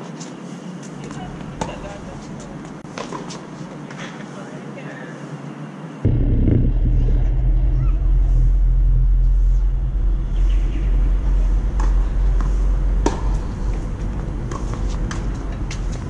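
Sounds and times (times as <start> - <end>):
steady low rumble: 6.0 - 16.0.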